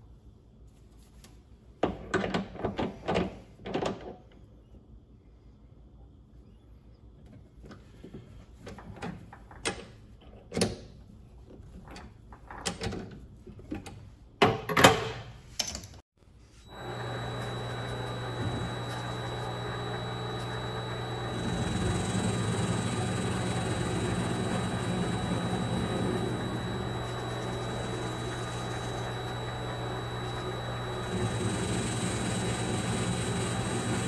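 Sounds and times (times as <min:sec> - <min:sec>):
lathe motor humming and whining: 0:16.6 - 0:34.0.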